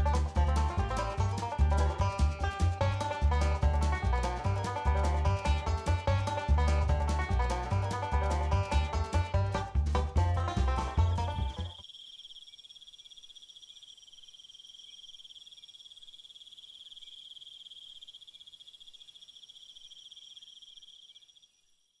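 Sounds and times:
insects trilling: 0:11.6 - 0:22.0.

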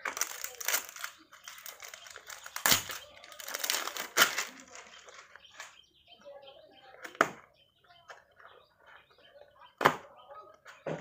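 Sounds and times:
plastic wrapping crinkling: 0:00.0 - 0:05.8.

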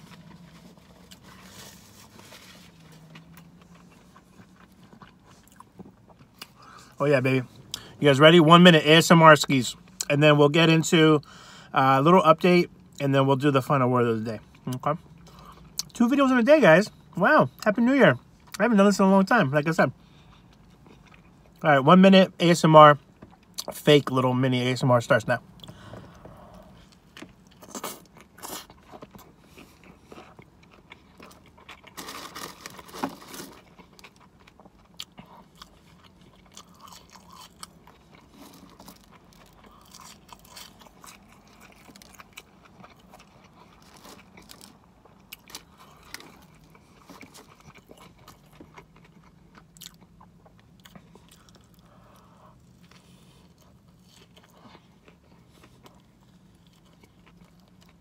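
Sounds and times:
biting and chewing: 0:00.0 - 0:07.0, 0:25.6 - 0:58.0.

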